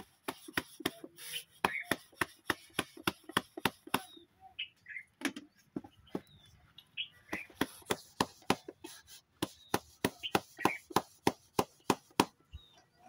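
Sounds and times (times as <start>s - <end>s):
palm patting dough: 0.0s - 4.1s, 7.2s - 12.4s
faint bird chirps: 3.8s - 7.5s.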